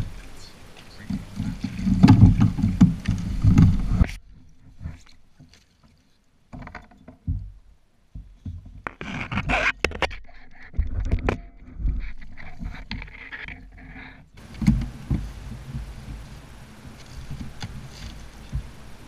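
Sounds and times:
dull thumps: 0.0 - 5.6, 6.5 - 19.0
water splashing: 0.0 - 6.6, 11.6 - 19.0
steady hiss: 0.0 - 19.0.

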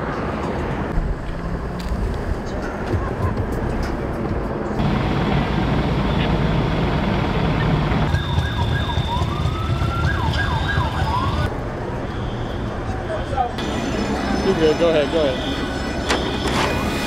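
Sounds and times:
street noise: 0.0 - 17.0
siren yelping: 8.1 - 11.5.

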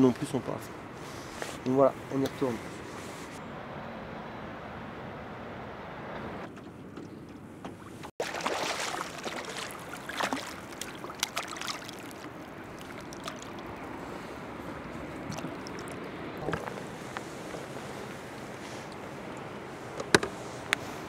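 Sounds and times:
water lapping: 7.7 - 21.0
fish splashing at water surface: 8.2 - 16.8.

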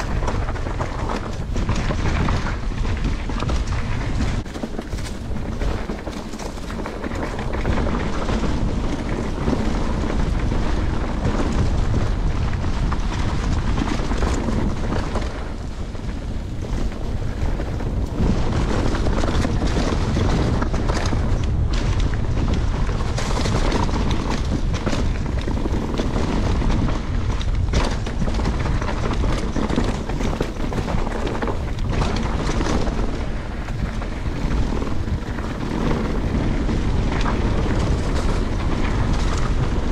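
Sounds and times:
bike rattle: 0.0 - 39.9
tyre noise on trail: 0.0 - 39.9
wind buffeting microphone: 0.0 - 39.9.

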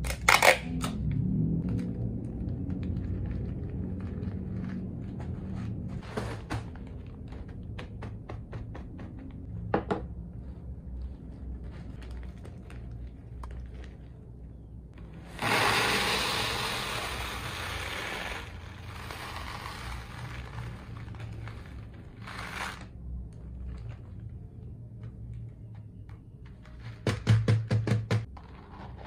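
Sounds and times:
plastic beads pouring into tub: 15.4 - 22.9.

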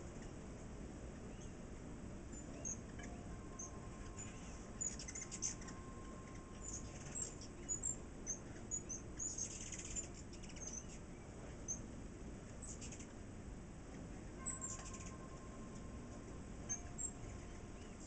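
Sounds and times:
hummingbirds chipping: 0.0 - 18.0
hummingbird rattling chatter: 2.2 - 11.0, 14.5 - 15.4.

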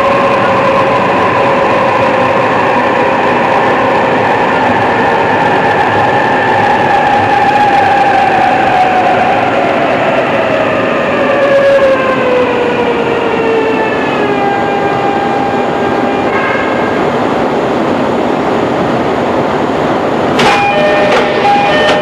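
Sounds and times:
train running rumble: 0.0 - 22.0
electric train motor whine: 20.4 - 22.0.

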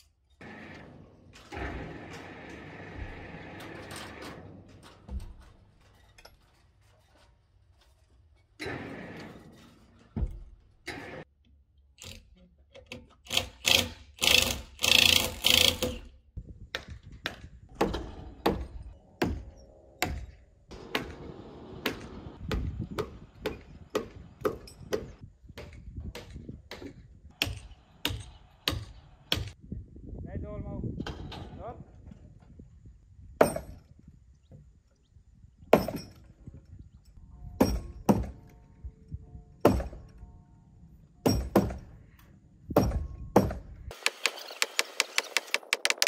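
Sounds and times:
hammer striking timber: 16.8 - 19.4, 21.8 - 29.6, 37.6 - 38.4, 39.6 - 40.0, 41.2 - 41.9, 42.8 - 46.0.

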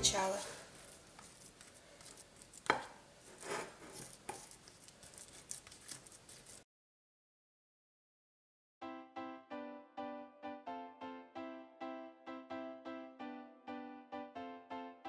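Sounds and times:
spatula scraping on a plate: 0.8 - 6.6.

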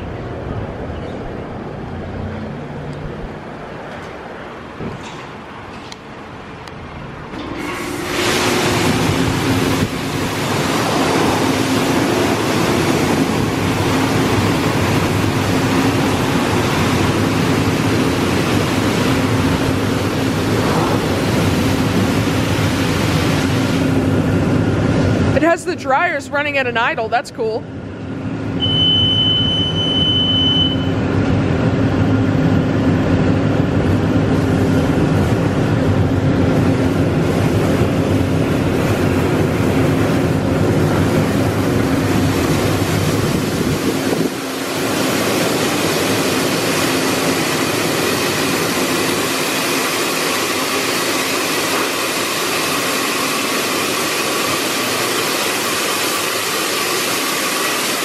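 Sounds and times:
dryer blowers rushing air: 0.0 - 28.8, 30.9 - 58.0
water spraying: 7.6 - 24.3, 36.8 - 58.0
high beep: 28.6 - 31.0.

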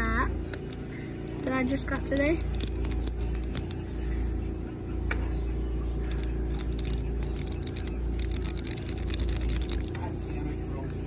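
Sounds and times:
plastic fidget toy clicking: 0.0 - 3.8, 6.1 - 10.0.

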